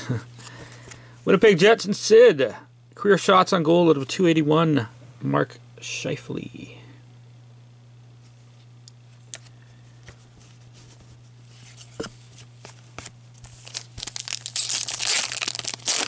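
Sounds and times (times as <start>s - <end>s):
foil wrapper tearing and crinkling: 13.4s - 16.0s.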